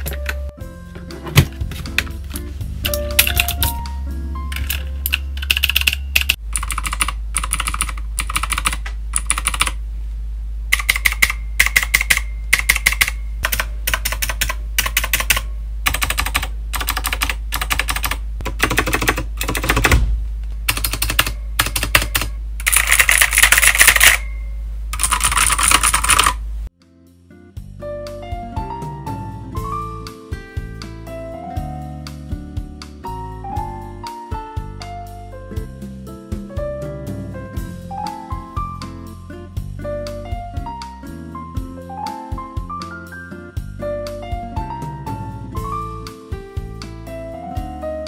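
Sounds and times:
steady low hum: 0.0s - 26.7s
mechanical keyboard typing: 2.9s - 3.8s, 4.5s - 9.8s, 10.7s - 20.0s, 20.7s - 24.3s, 25.0s - 26.4s.

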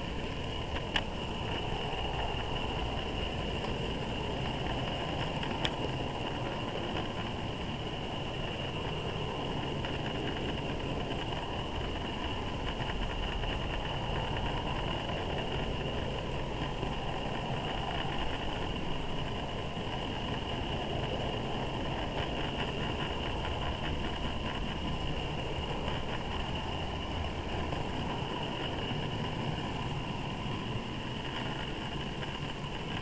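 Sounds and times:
model train wheels rumbling on rail: 0.0s - 33.0s
steady high whine: 0.0s - 33.0s.

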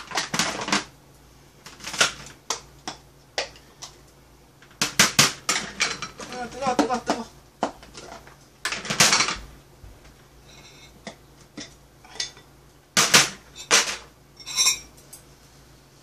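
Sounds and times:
plastic containers clattering on tray: 0.0s - 0.9s, 1.7s - 3.6s, 4.8s - 9.5s, 13.0s - 14.1s.

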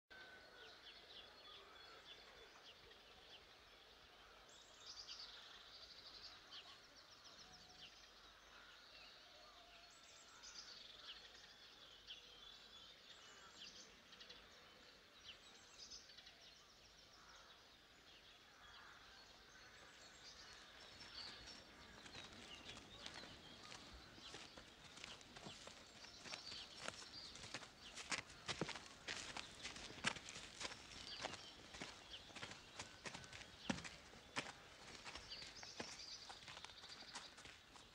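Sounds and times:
faint birdsong: 0.1s - 37.9s.

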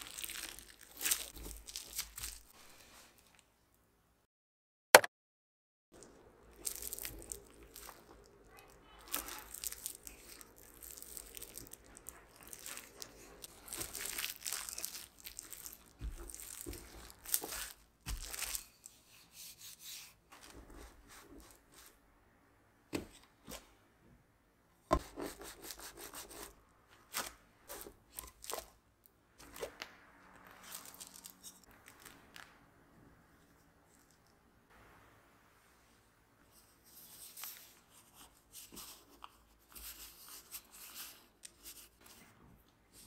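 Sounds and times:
plastic wrap crinkling: 0.0s - 2.6s, 6.0s - 19.1s, 27.0s - 28.8s, 29.4s - 32.8s.

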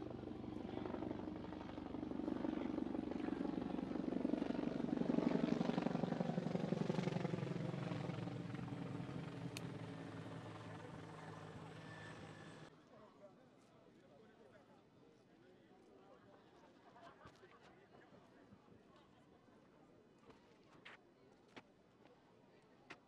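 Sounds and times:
helicopter rotor chopping: 0.0s - 12.7s.

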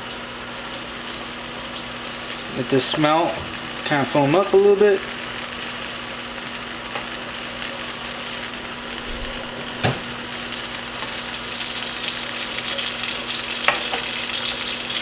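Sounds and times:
butter sizzling in pan: 0.0s - 15.0s.

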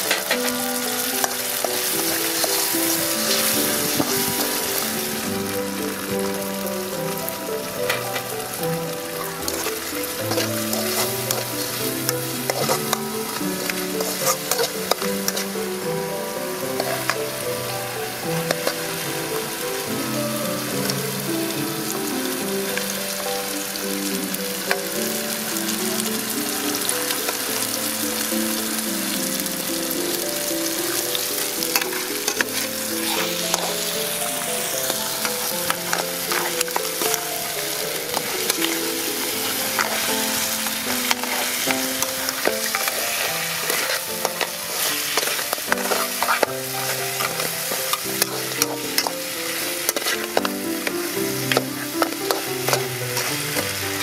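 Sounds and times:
metal spatula scraping a pan: 0.0s - 5.2s, 9.2s - 15.6s, 16.8s - 17.4s, 18.5s - 19.6s, 31.6s - 54.0s
crabs sizzling in a wok: 0.0s - 54.0s
soft background music: 0.0s - 54.0s.

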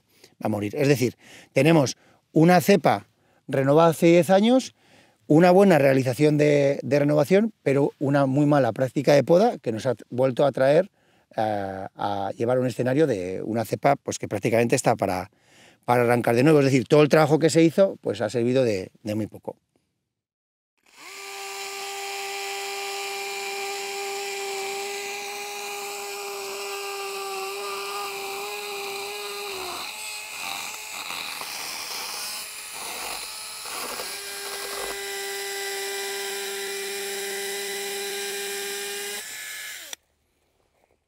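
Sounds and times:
chainsaw whining: 20.8s - 40.0s.

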